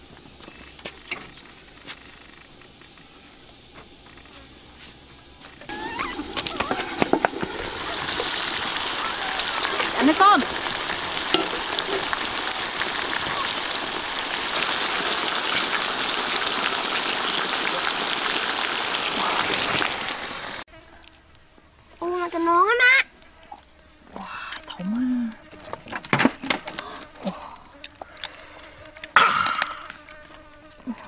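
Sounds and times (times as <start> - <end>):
food sizzling in hot oil: 5.7 - 20.6.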